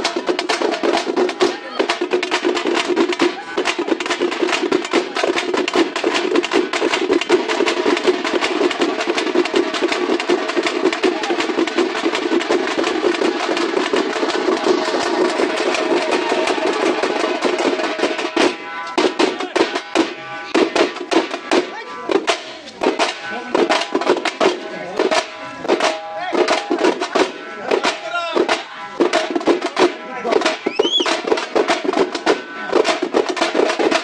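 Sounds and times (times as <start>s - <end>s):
fast driving drumming: 0.0s - 34.0s.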